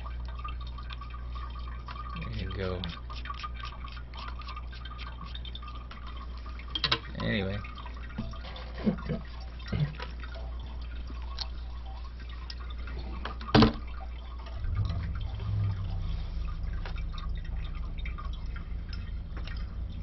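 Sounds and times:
low steady hum: 0.0 - 20.0
water dripping in a toilet tank: 0.0 - 20.0.

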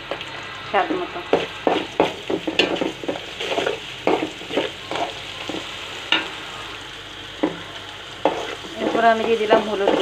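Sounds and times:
food sizzling in hot oil: 0.0 - 10.0
spatula scraping a pan: 1.4 - 6.3, 8.2 - 10.0.

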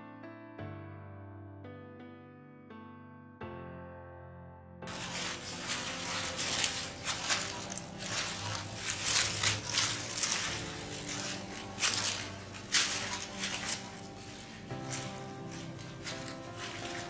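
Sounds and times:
dry leaves rustling: 4.9 - 17.0
plastic bag crinkling: 4.9 - 17.0.

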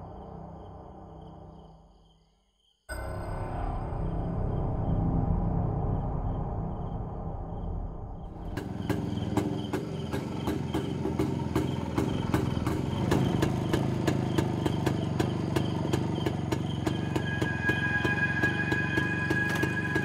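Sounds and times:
engine knocking: 8.4 - 20.0
motorcycle engine idling: 8.4 - 20.0.

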